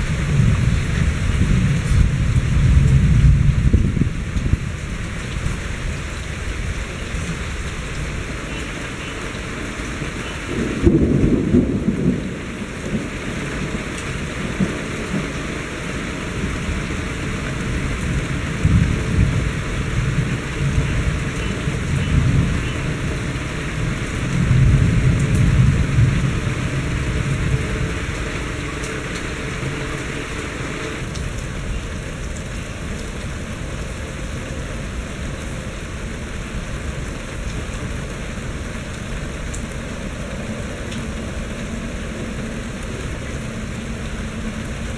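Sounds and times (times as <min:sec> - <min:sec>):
rolling thunder rumbles: 0:00.0 - 0:08.4, 0:10.0 - 0:33.4
steady rain: 0:00.0 - 0:44.9
thunder crack: 0:10.5 - 0:13.8.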